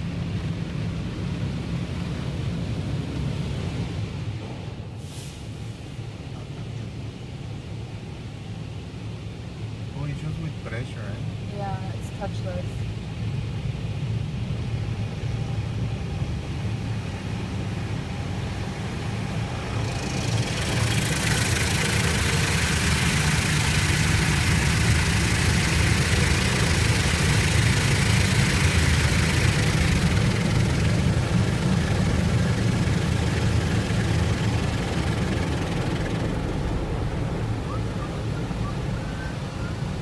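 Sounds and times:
low rumble: 17.4s - 40.0s
water jets spraying on car: 19.3s - 36.3s.

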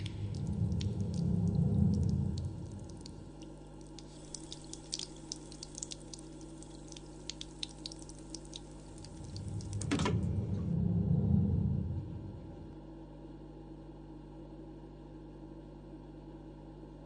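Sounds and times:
low rumbling drone: 0.0s - 5.9s, 8.1s - 12.8s
water dripping: 0.0s - 9.9s.

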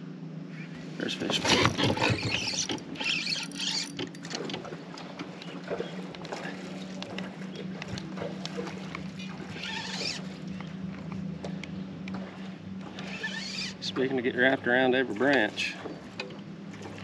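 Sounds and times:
low hum: 0.0s - 17.0s
fishing reel ticking: 1.6s - 4.2s, 9.5s - 10.2s, 12.9s - 13.9s.

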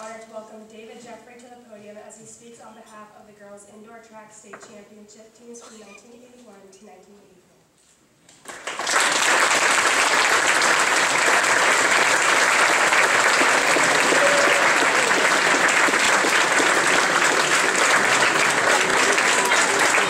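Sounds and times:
crowd applauding: 8.4s - 20.0s.

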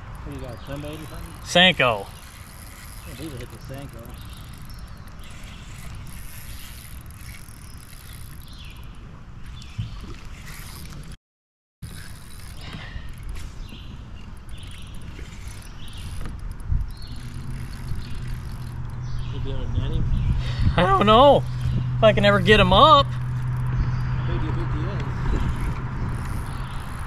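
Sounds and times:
water lapping around kayak: 0.0s - 11.2s, 11.8s - 27.0s
wind buffeting microphone: 12.6s - 27.0s.

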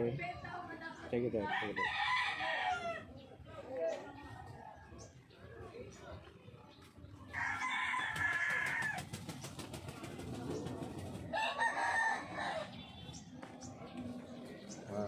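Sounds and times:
rooster crowing: 7.3s - 9.1s, 11.3s - 12.7s.

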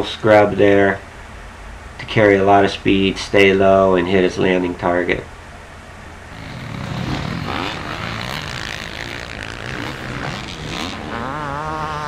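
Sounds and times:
motocross bike engine revving: 6.3s - 12.0s.

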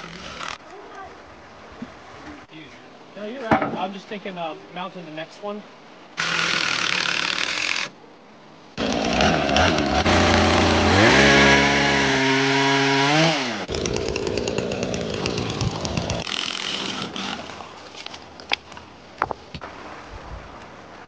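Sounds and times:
chainsaw revving: 8.8s - 17.5s
creek water rushing and splashing: 15.2s - 21.0s.

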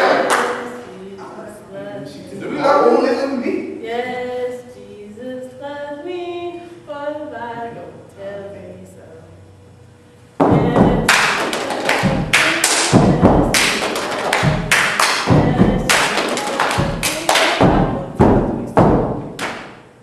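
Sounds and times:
hand claps: 0.0s - 0.7s, 11.0s - 19.9s.

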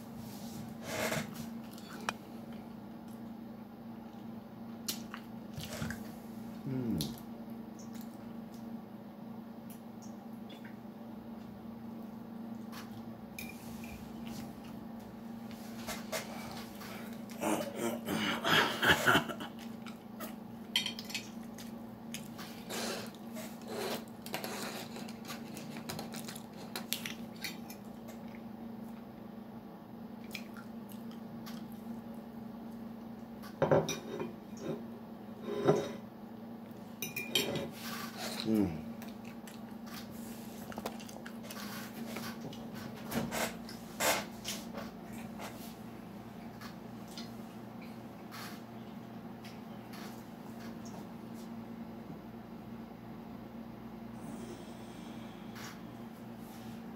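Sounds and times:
steady low hum: 0.0s - 56.9s.

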